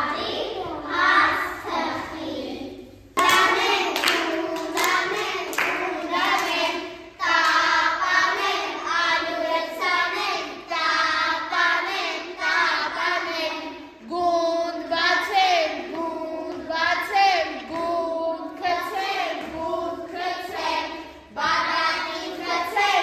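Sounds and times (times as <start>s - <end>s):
children singing together: 0.0s - 23.0s
hand claps: 3.2s - 6.8s.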